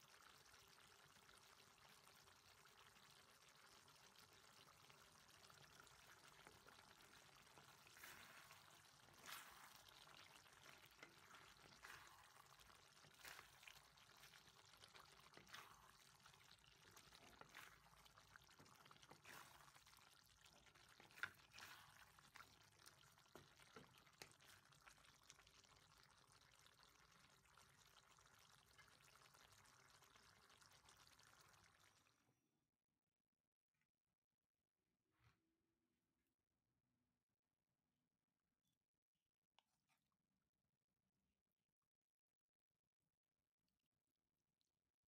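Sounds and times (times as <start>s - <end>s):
sauce bubbling with soft pops: 0.0s - 32.2s.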